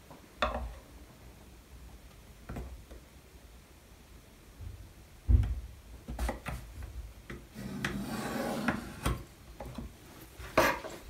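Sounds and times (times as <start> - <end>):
pencil scratching along ruler: 7.6 - 9.0.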